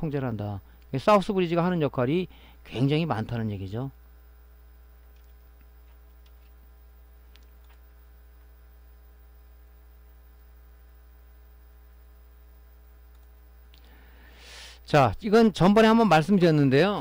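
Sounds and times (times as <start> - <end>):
low electrical hum: 0.0 - 17.0
faint clicks: 7.3 - 8.0, 13.1 - 14.0.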